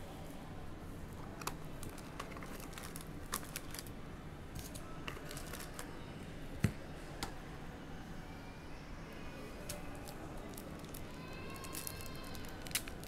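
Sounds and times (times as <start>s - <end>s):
cardboard box and foil packs handled: 1.8s - 3.9s, 4.6s - 5.9s.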